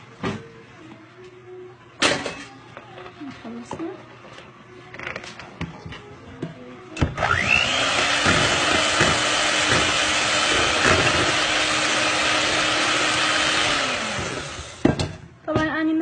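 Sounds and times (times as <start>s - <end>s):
electric hand mixer whining: 7.0s - 14.9s
beaters whisking batter in bowl: 7.6s - 14.7s.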